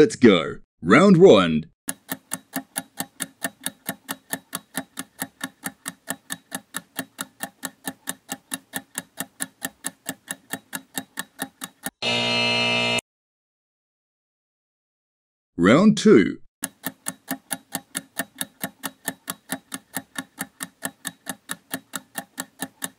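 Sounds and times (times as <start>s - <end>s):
clock ticking: 1.9s - 12.0s, 16.6s - 22.9s.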